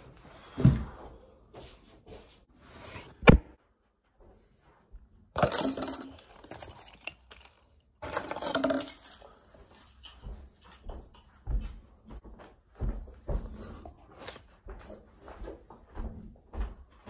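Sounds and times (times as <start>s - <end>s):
keys clattering and clinking: 5.4s - 12.2s.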